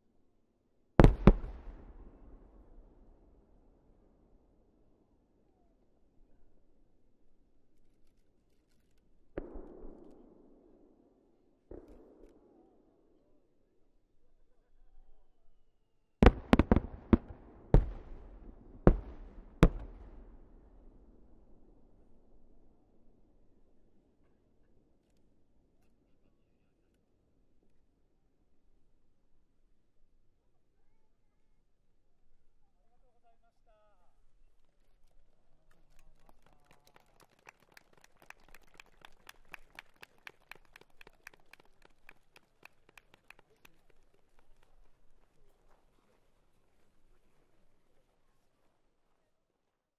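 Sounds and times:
firework shells bursting: 1.0s - 2.4s, 16.2s - 20.5s
faint voice: 32.7s - 34.2s
people clapping: 35.0s - 45.8s.

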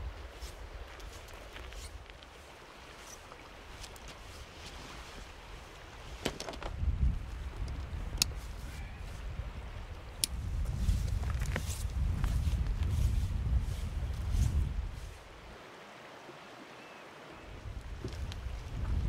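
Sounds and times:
river rushing: 0.0s - 6.4s, 15.2s - 18.1s
wind buffeting microphone: 5.2s - 15.6s, 17.5s - 19.0s
clicks of camping gear handled: 6.2s - 6.8s, 7.6s - 8.5s.

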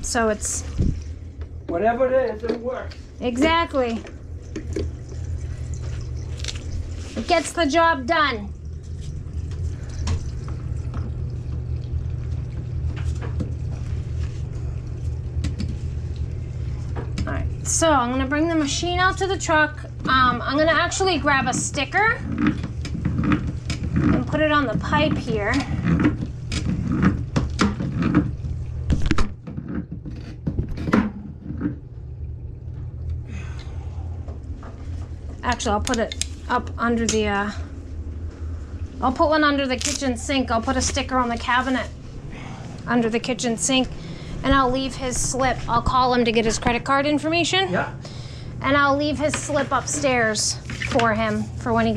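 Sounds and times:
steady low rumble: 0.0s - 27.4s, 30.7s - 51.9s
low hum: 0.0s - 51.9s.

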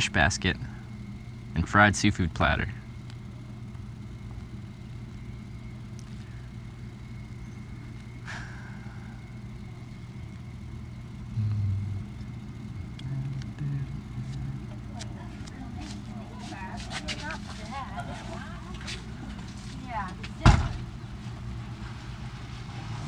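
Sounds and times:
low engine hum: 0.0s - 23.0s
brief low sounds: 11.4s - 12.1s.

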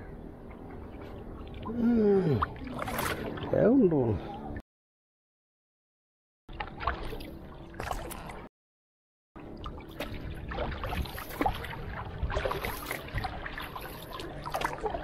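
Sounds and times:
water splashing and trickling: 0.2s - 4.6s, 6.5s - 8.5s, 9.4s - 15.0s
paddle splashing water: 0.5s - 4.6s, 6.5s - 8.5s, 9.5s - 15.0s.

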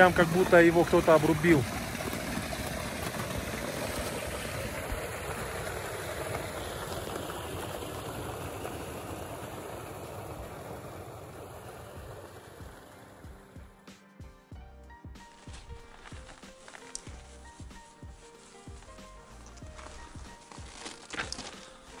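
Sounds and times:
meltwater rushing through ice: 0.0s - 13.5s, 15.4s - 22.0s.

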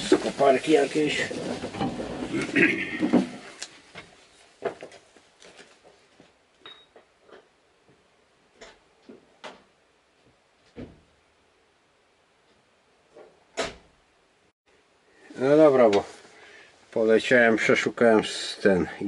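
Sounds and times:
knocks and clunks: 10.7s - 11.1s.

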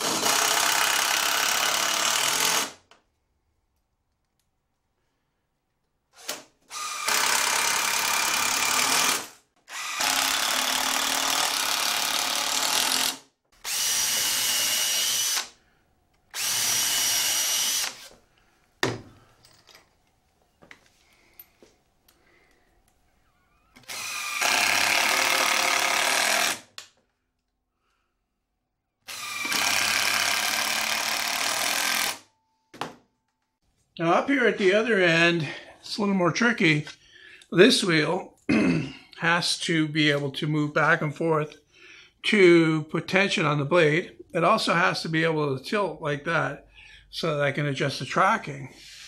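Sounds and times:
impact driver driving screws: 23.8s - 26.9s, 29.1s - 32.2s.

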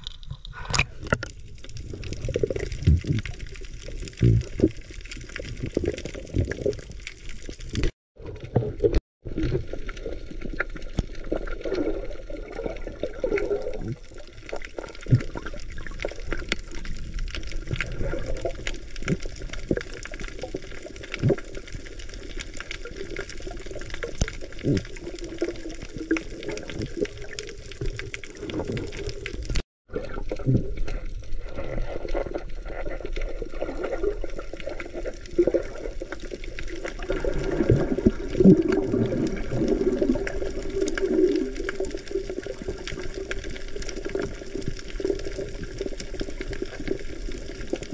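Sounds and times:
muffled underwater gurgling: 0.0s - 6.9s, 23.0s - 36.2s.

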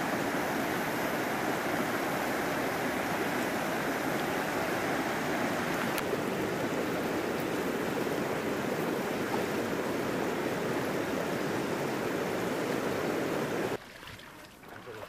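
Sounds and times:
water sloshing and splashing: 13.7s - 15.0s.

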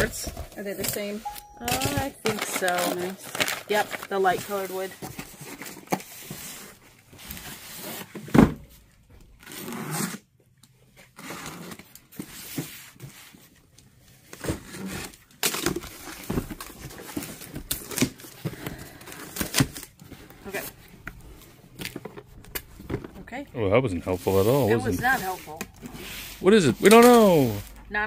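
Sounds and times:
cardboard boxes rubbing and tearing: 9.4s - 10.3s, 24.0s - 27.8s.

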